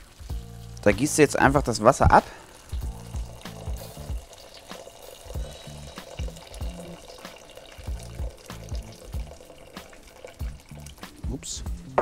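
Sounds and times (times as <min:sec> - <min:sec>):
water pouring between pots: 0:00.0 - 0:11.4
background music with bass beat: 0:00.2 - 0:01.6, 0:02.8 - 0:04.2, 0:05.4 - 0:07.0, 0:10.4 - 0:12.0.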